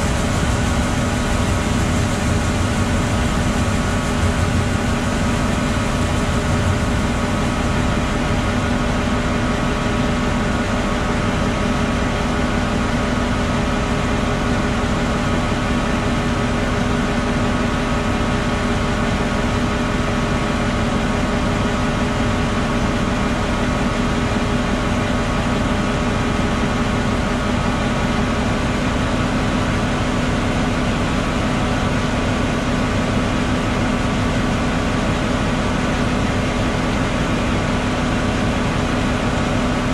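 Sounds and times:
tractor engine droning: 0:00.0 - 0:11.2.

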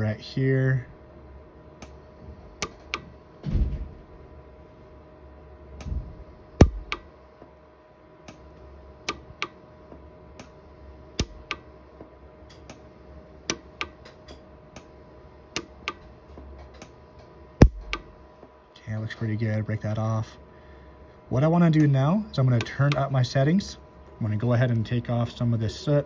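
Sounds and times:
welder pulse snaps: 0:02.6 - 0:03.1, 0:05.8 - 0:07.1, 0:11.2 - 0:11.7, 0:17.6 - 0:18.2.

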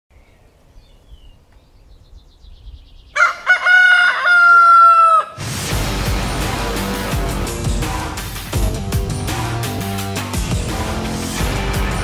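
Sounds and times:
rooster crowing: 0:03.2 - 0:05.4
music: 0:05.4 - 0:12.0.

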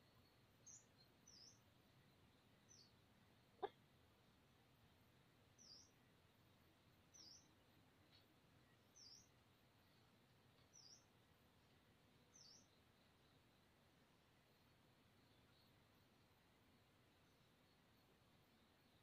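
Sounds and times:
small bird chirping: 0:00.0 - 0:03.9, 0:05.4 - 0:11.4, 0:12.1 - 0:13.5
faint background hiss: 0:00.0 - 0:19.0.

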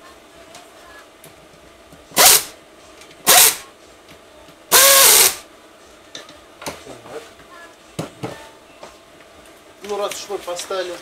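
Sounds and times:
power screwdriver running: 0:02.2 - 0:02.5, 0:03.3 - 0:03.6, 0:04.8 - 0:05.4.

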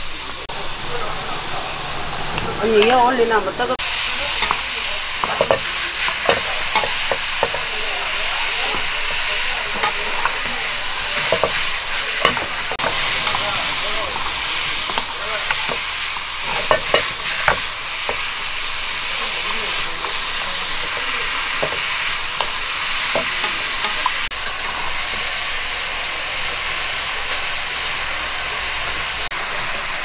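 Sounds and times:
egg sizzling in pan: 0:00.0 - 0:30.0
spatula tapping and scraping pan: 0:04.4 - 0:13.5, 0:14.1 - 0:18.3, 0:19.9 - 0:24.6.

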